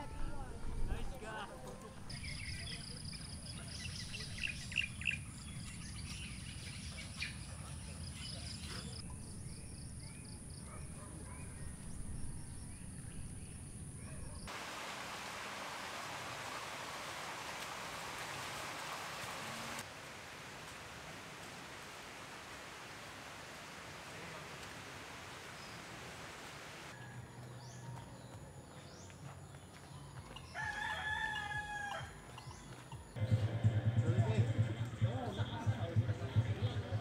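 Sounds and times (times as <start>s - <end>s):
birds chirping: 0.0s - 14.5s, 27.0s - 37.0s
steady even hiss: 14.5s - 26.9s.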